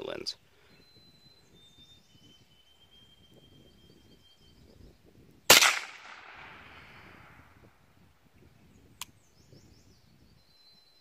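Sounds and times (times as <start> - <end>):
chirping: 0.6 - 4.9
thin high whistle: 0.9 - 4.6
rifle shot with echo: 5.5 - 7.4.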